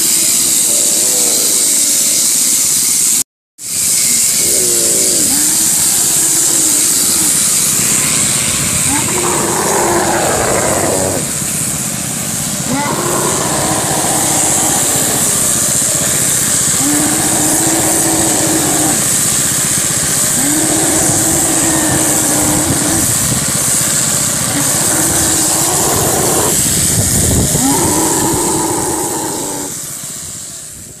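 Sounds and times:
camel moaning: 0.4 - 1.7, 4.3 - 11.4, 12.6 - 23.5, 24.4 - 29.8.

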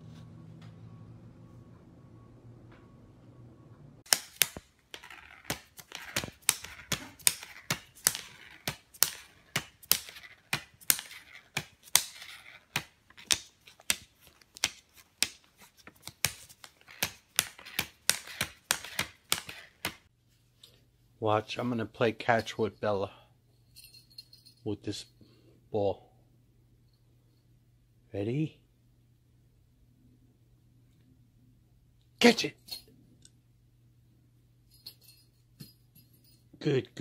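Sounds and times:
plastic banknotes crinkling: 4.1 - 20.1.

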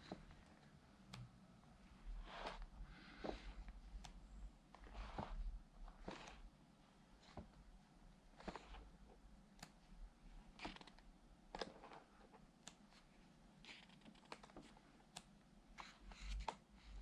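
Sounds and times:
book pages turning: 2.2 - 3.6, 4.8 - 6.4, 8.4 - 8.9, 10.6 - 11.0, 13.7 - 14.8.

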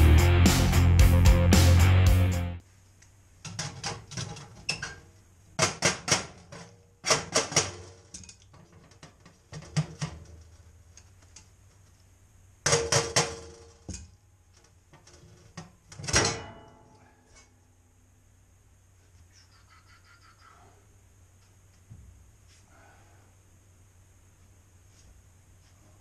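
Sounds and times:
low steady hum: 7.7 - 26.0.

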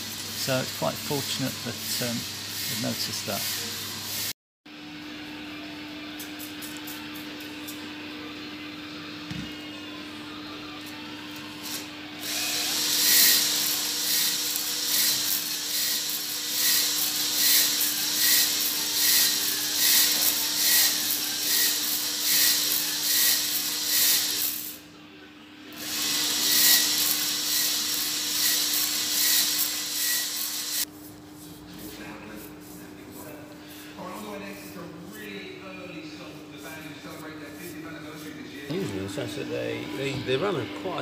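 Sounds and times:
drill spinning wire brush scraping: 0.0 - 4.3, 12.2 - 24.8, 25.8 - 30.9.

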